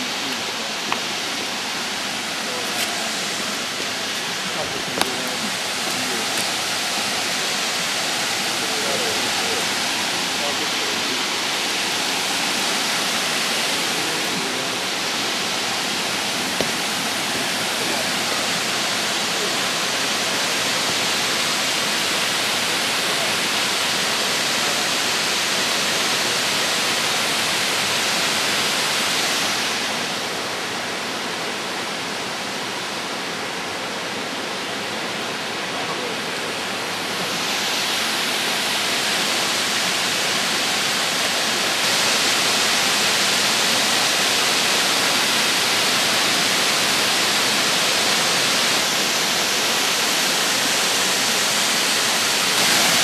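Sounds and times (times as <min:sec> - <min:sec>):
creek rushing over rocks: 0:00.0 - 0:53.0.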